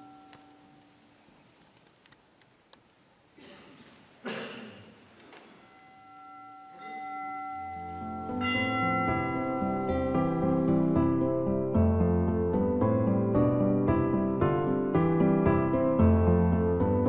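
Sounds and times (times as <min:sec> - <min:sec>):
soft instrumental music: 0:05.6 - 0:17.0.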